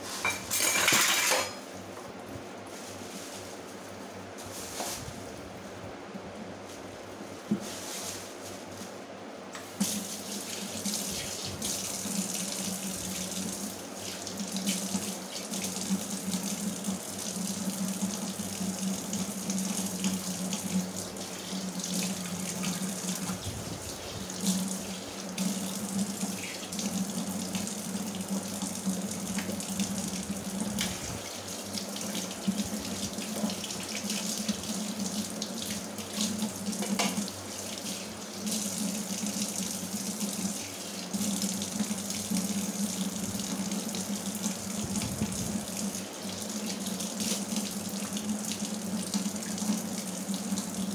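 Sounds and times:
tap water running into sink: 24.3 - 50.9.

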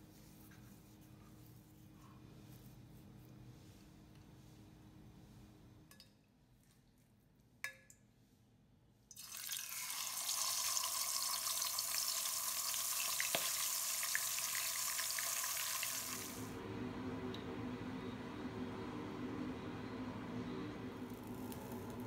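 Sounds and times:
fish sizzling in hot oil: 9.2 - 16.4.

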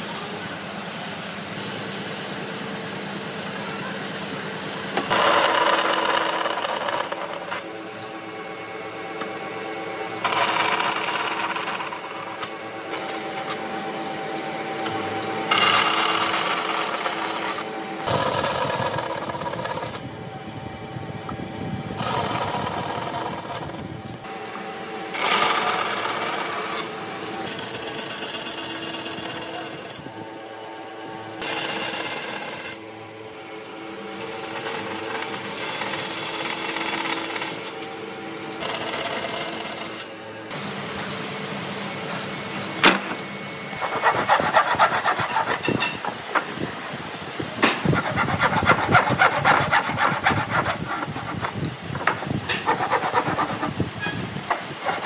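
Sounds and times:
power tools cutting wood: 5.1 - 7.6, 15.5 - 20.0, 43.8 - 45.8.

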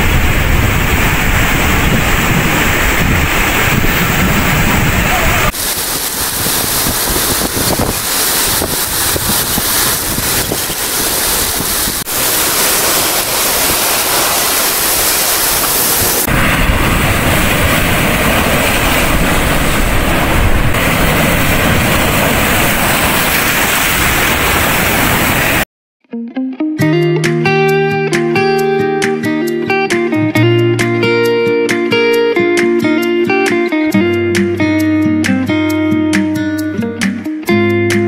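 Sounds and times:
wind buffeting microphone: 0.0 - 25.6
sea surf: 0.0 - 25.7
guitar music: 26.0 - 38.0.

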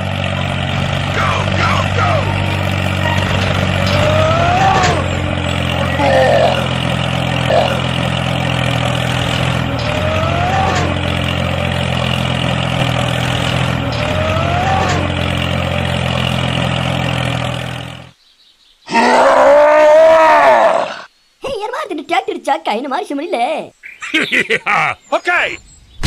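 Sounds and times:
tractor engine running: 0.0 - 18.2
loud growling roar: 0.3 - 11.7, 13.1 - 15.3, 18.9 - 21.1.

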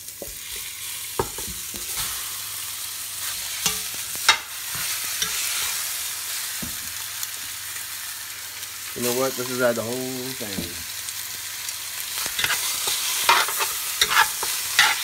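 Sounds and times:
meat sizzling in hot oil: 0.0 - 15.0
spoon clinking and scraping pot: 12.4 - 15.0.

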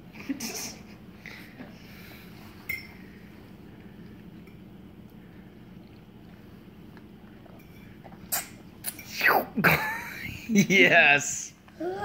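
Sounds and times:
tableware clink: 2.6 - 3.0.

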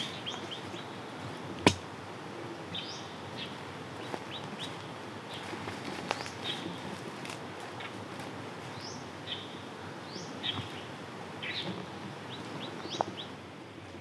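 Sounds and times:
background hiss: 0.0 - 14.0
sharp knock: 1.6 - 1.8
small birds chirping: 8.7 - 13.4.

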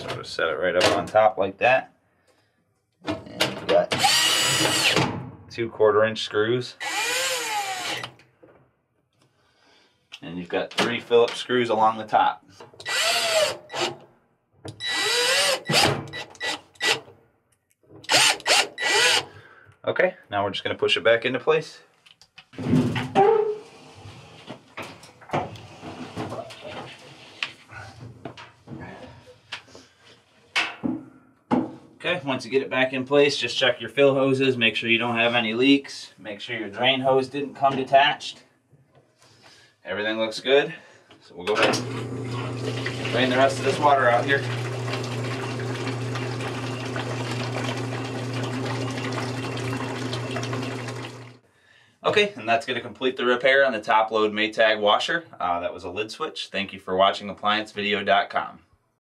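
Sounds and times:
washer cabinet scraping on floor: 25.4 - 27.4
washing machine motor hum: 41.6 - 51.4
water rushing: 41.8 - 51.4.

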